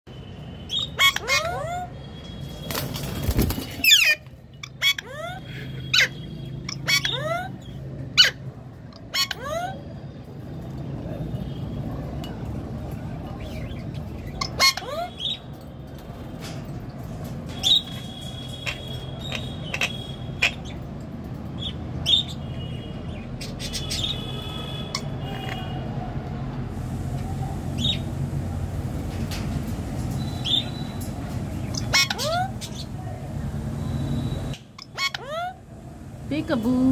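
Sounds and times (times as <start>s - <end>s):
parrot squawking and chirping: 0.7s - 2.1s, 3.6s - 10.0s, 13.4s - 15.6s, 17.5s - 25.8s, 31.6s - 33.0s, 34.2s - 35.7s.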